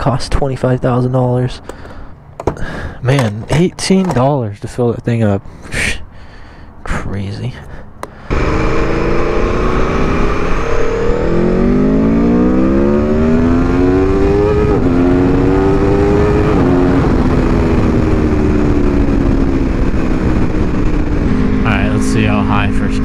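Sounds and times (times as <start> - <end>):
motorcycle engine accelerating: 8.3 - 23.0.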